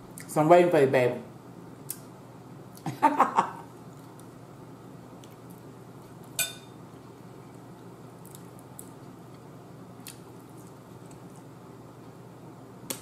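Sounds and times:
low steady hum: 0.0 - 13.0
fork clinking on plate: 6.4 - 6.8.

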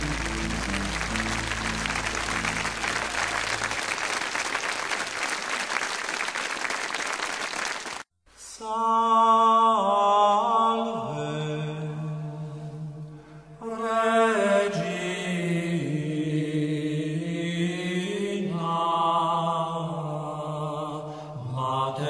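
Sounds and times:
low music notes: 0.0 - 4.0
voices singing slow chant: 8.4 - 22.0.

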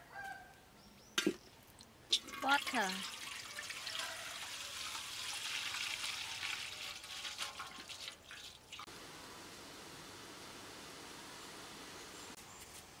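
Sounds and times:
water pouring into a metal wok: 2.1 - 8.9.

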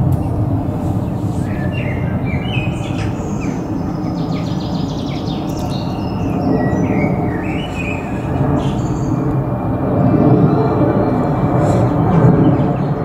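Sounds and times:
steady low rumble: 0.0 - 13.0
small birds chirping and whistling: 0.9 - 9.3.

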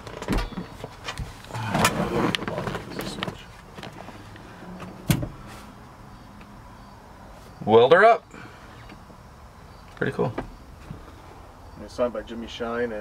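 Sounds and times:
clicks and rustling in truck cab: 0.0 - 5.8.

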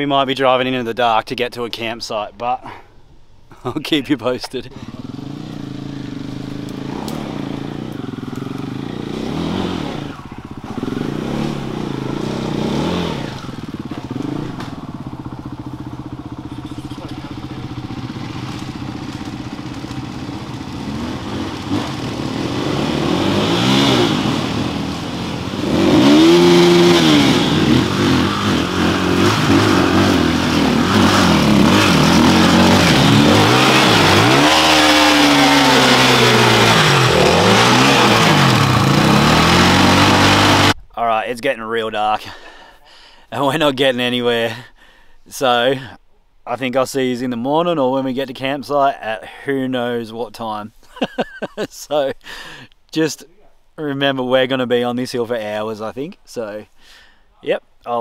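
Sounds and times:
dirt bike engines revving: 3.6 - 40.8.

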